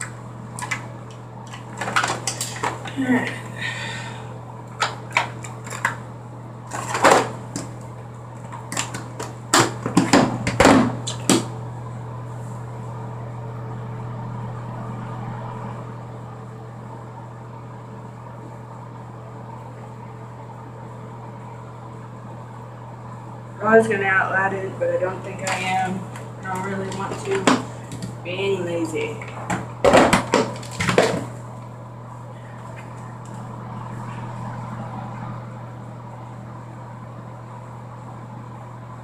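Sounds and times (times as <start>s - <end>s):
steady low hum: 0.0s - 39.0s.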